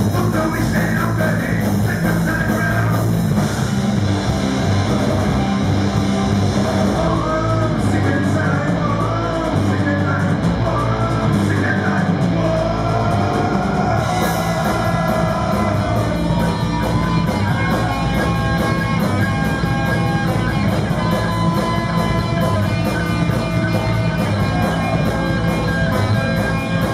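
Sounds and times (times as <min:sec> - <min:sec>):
drum kit: 0:00.0 - 0:26.9
electric guitars: 0:00.0 - 0:26.9
person singing: 0:06.8 - 0:26.9.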